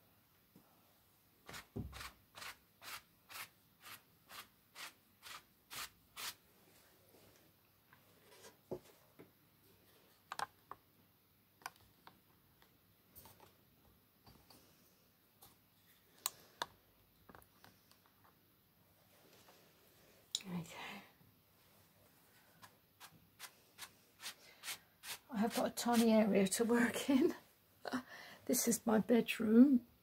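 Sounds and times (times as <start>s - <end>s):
paintbrush scratching on canvas: 1.5s - 6.4s, 23.0s - 26.1s.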